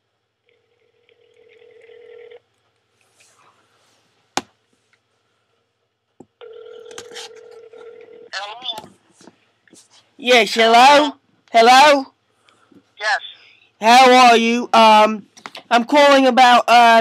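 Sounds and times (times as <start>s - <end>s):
telephone ringback tone: 0.5s - 2.4s, 6.4s - 8.3s.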